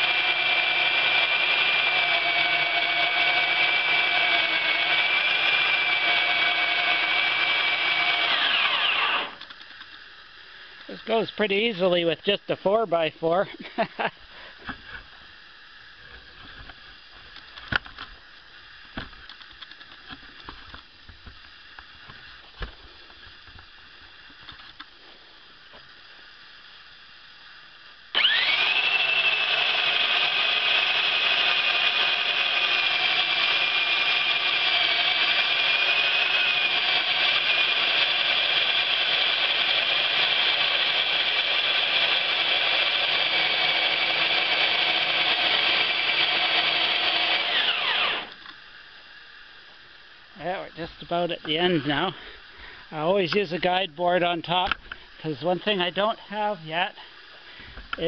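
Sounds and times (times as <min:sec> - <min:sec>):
bandsaw mill whining: 0:00.0 - 0:09.7, 0:28.1 - 0:48.5.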